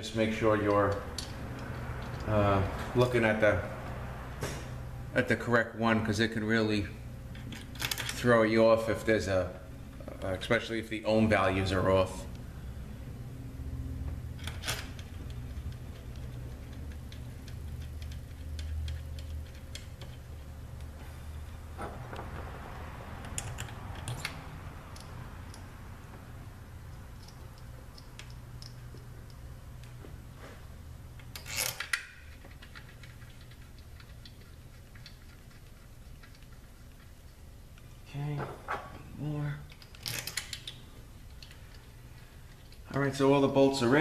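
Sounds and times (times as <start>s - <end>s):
steady low hum: 0.0s - 44.0s
light metallic clicks of bolts: 23.2s - 25.7s, 26.9s - 30.0s.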